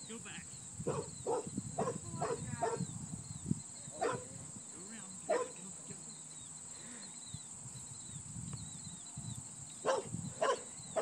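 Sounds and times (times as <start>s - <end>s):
dog barking: 0.8s - 2.9s, 3.9s - 4.4s, 5.3s - 5.6s, 9.8s - 11.0s.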